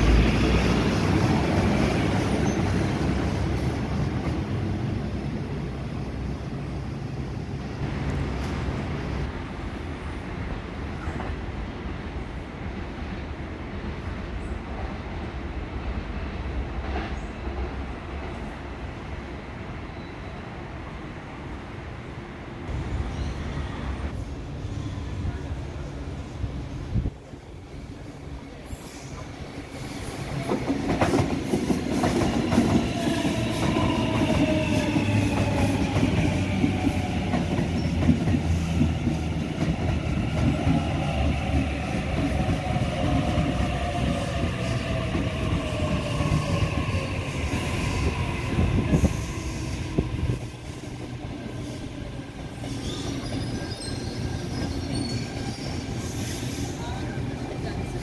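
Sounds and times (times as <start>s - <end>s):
train rumble: 22.4s - 58.0s.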